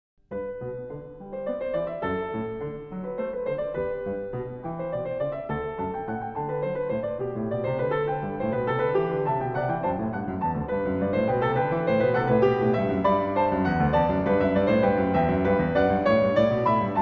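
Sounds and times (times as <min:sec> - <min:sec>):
piano music: 0:00.3 - 0:17.0.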